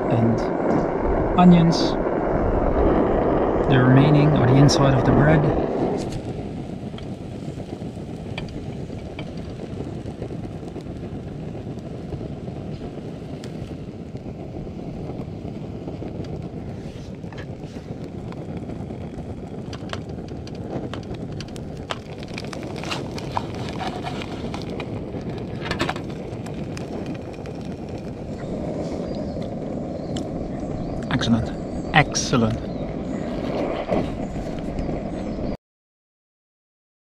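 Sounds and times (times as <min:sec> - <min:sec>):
steady low rushing noise: 0:00.0 - 0:35.6
bread frying in oil: 0:06.0 - 0:32.8.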